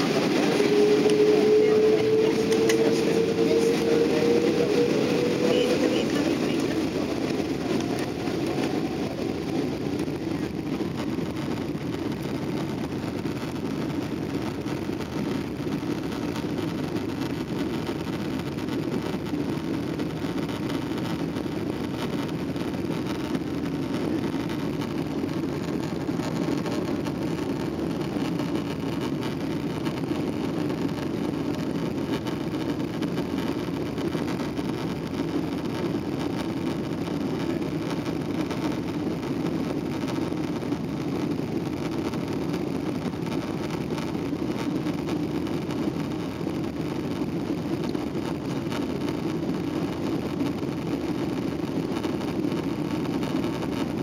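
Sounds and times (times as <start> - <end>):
jet airliner cabin rumble: 0.0 - 54.0.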